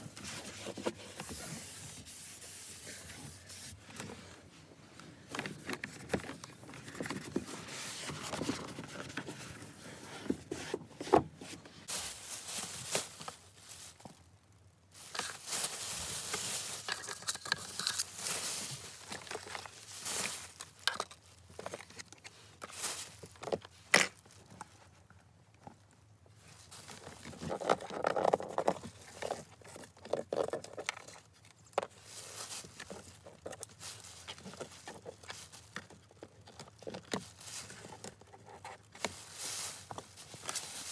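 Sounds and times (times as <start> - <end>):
plastic bag crinkling: 11.9 - 24.6, 26.6 - 40.9.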